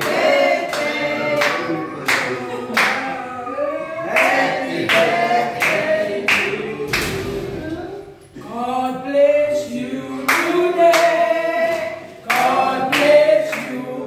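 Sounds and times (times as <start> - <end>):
people clapping along: 0.0 - 3.2, 4.1 - 7.5, 10.3 - 14.0
group singing unaccompanied: 0.0 - 14.0.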